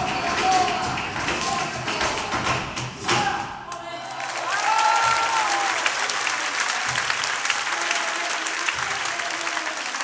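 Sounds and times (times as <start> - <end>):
audience applauding: 4.1 - 10.0.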